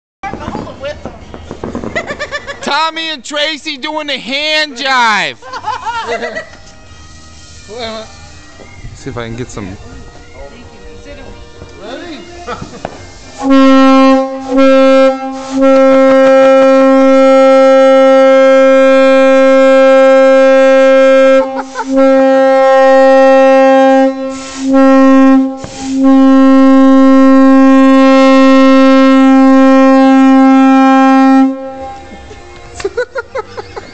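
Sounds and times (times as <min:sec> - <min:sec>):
train horn blasts: 0:13.3 - 0:32.1.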